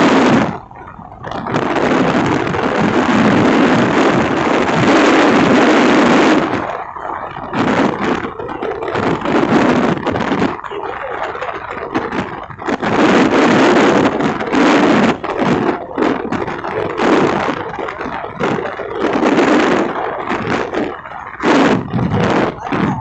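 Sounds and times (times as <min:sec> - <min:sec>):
motorcycle engine running: 0:00.0 - 0:23.0
wind rushing over microphone: 0:00.0 - 0:23.0.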